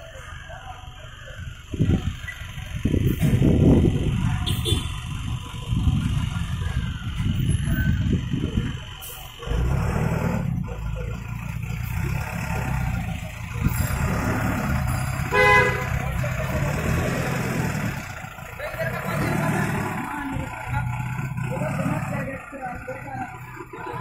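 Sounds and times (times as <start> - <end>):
truck engine idling: 0.0 - 24.0
vehicle horn toot: 4.4 - 5.0, 15.2 - 16.1.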